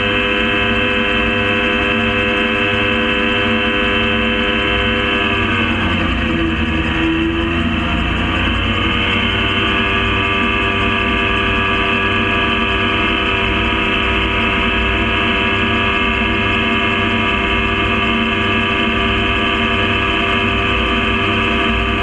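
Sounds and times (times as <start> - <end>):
aircraft engine and propeller drone: 0.0 - 22.0.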